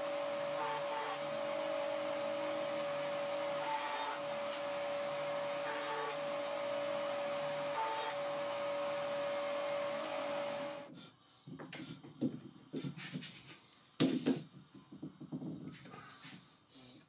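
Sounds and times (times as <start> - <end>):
band saw cutting wood: 0.0 - 10.9.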